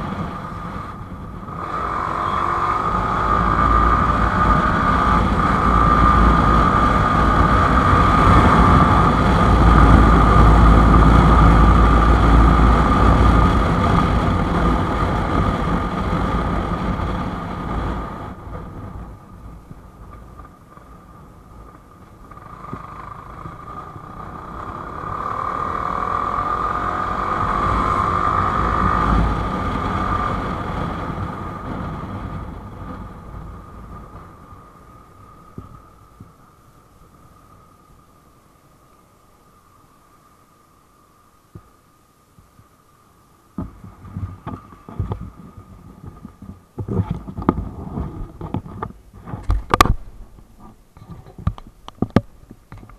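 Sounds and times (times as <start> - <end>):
motorcycle engine running: 0.0 - 36.4
wind rushing over microphone: 0.0 - 38.1, 43.5 - 52.9.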